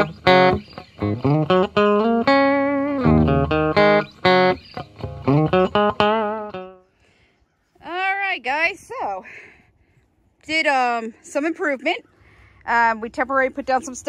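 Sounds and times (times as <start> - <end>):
plucked intro music: 0.0 - 6.8.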